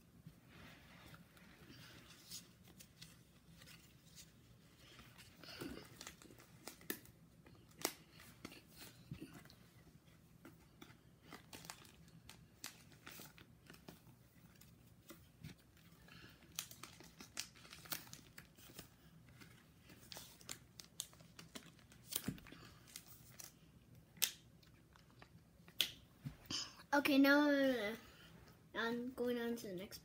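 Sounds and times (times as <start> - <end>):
plastic pages crinkling: 1.7 - 9.5, 10.5 - 24.4.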